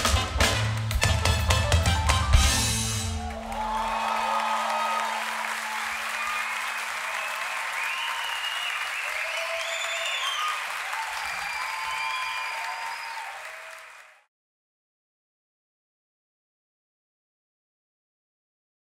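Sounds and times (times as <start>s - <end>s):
crowd cheering and shouting: 2.3s - 14.2s
audience applauding: 2.9s - 14.3s
whistles from crowd: 3.5s - 14.0s.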